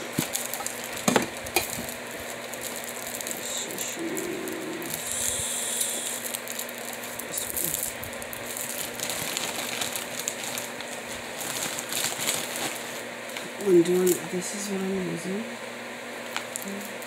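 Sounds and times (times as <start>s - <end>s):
small items clattering: 0.0s - 5.2s, 5.8s - 14.2s
plastic packaging rustling: 0.0s - 14.4s, 16.2s - 17.0s.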